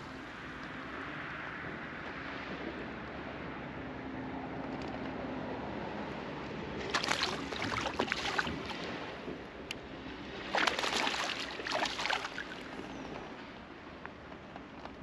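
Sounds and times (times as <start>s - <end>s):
fish splashing in water: 6.8s - 9.2s, 10.3s - 13.0s.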